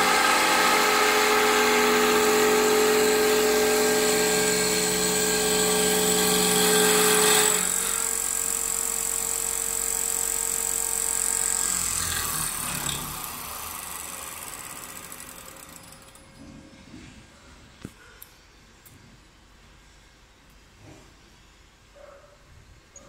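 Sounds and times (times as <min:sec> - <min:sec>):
lathe motor hum and whine: 0:00.0 - 0:15.8.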